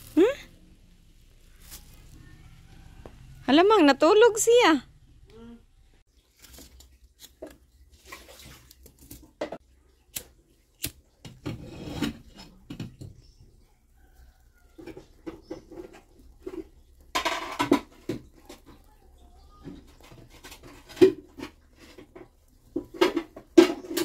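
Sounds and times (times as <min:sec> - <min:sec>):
rustling scrape of kindling: 0:01.4 - 0:03.0
firewood knocking and scraping: 0:10.8 - 0:24.0.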